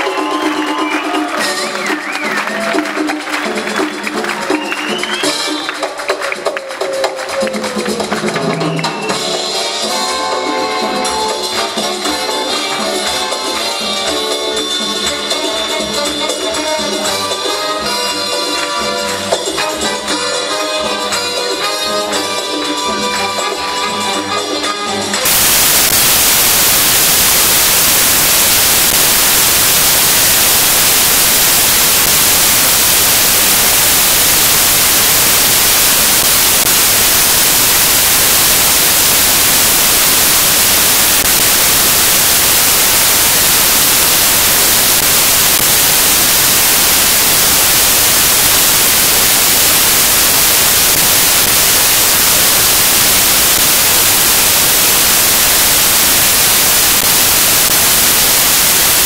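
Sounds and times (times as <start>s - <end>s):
static hiss: 25.2s - 59.0s.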